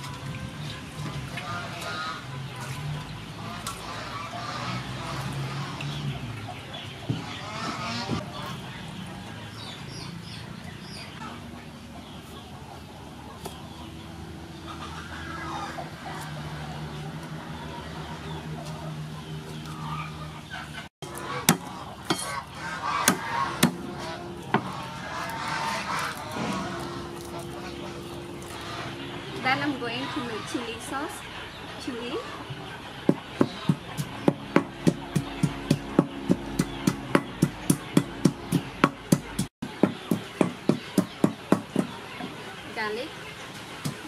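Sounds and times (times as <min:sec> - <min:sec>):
cleaver chopping on wooden block: 0:21.4 - 0:22.3, 0:23.0 - 0:23.8, 0:33.1 - 0:41.9
pestle pounding in wooden mortar: 0:33.1 - 0:41.9.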